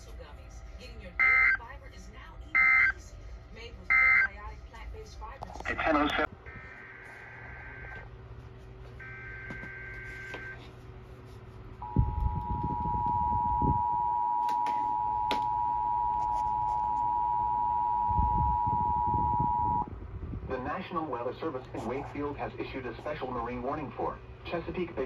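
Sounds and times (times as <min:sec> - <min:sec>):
two-tone attention signal: 0:01.2 - 0:01.6, 0:11.8 - 0:19.9
low rumbling: 0:17.1 - 0:23.1.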